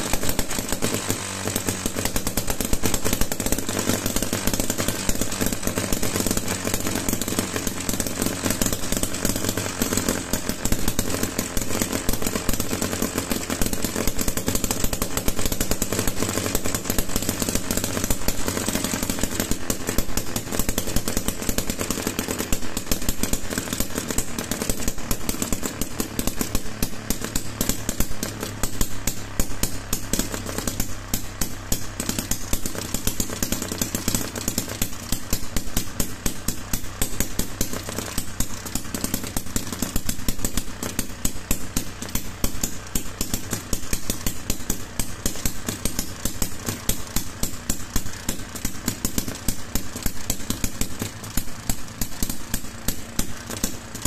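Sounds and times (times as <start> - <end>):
model engine running: 0.0 - 54.0.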